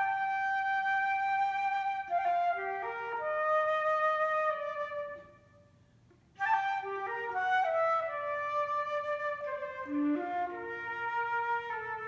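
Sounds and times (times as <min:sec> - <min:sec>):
flute playing slow melody: 0:00.0 - 0:05.6, 0:06.4 - 0:12.0.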